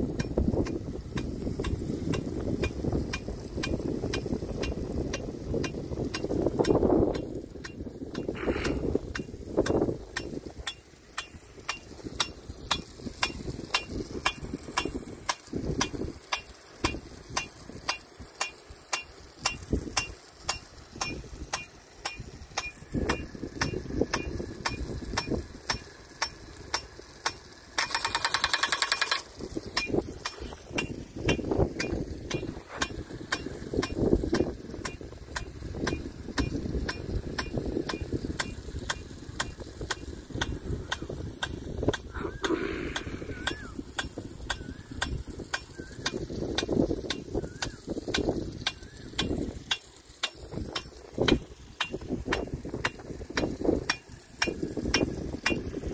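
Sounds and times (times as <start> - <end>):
low gusty rumble: 0.0 - 10.7
impact sprinkler ticking: 0.0 - 55.9.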